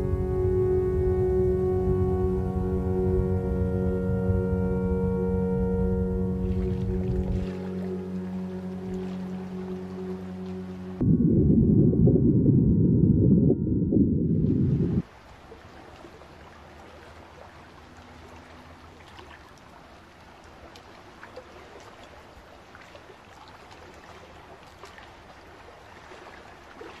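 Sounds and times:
loud low drone: 0:00.0 - 0:15.0
calm water washing: 0:00.0 - 0:27.0.

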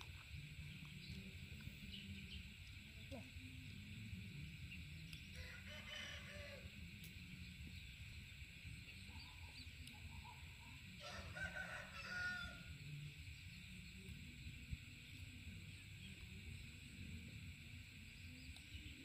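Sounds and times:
faint rooster crowing: 0:05.3 - 0:07.0, 0:10.8 - 0:12.9.

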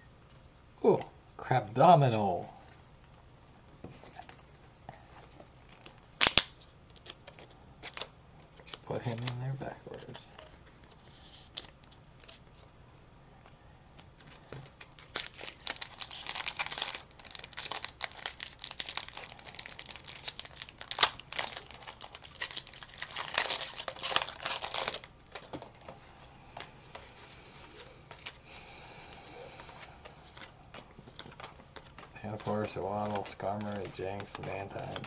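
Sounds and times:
foil wrapper tearing and crinkling: 0:05.7 - 0:06.5, 0:14.8 - 0:25.5.

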